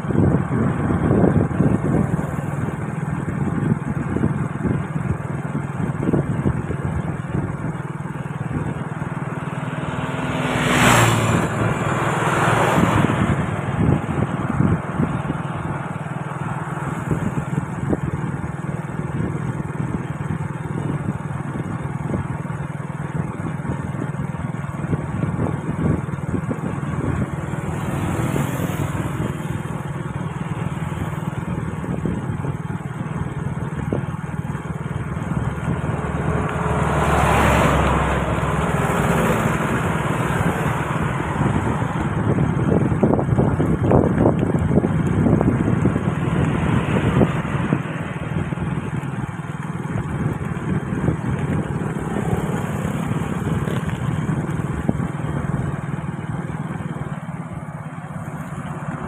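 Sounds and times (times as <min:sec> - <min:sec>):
motorbike engine cruising: 0:00.0 - 0:59.0
wind rushing: 0:09.7 - 0:18.1, 0:35.0 - 0:49.2.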